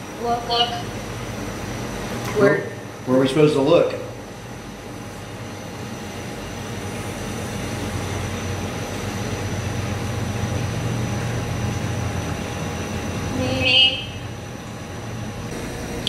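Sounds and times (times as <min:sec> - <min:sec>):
low hum: 0:15.5 - 0:16.0
radio static hiss: 0:15.5 - 0:16.0.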